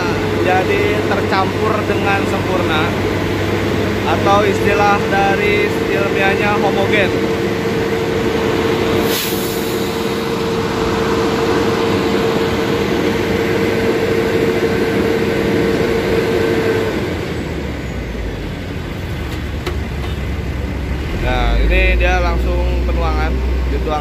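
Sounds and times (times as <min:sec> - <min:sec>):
concrete mixer truck engine: 0:00.0 - 0:24.0
steady whine: 0:00.0 - 0:24.0
short hiss: 0:09.0 - 0:10.0.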